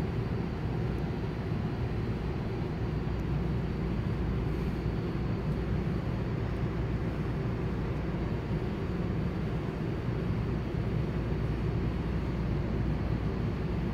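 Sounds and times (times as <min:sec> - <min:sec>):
low mechanical rumble: 0:00.0 - 0:13.9.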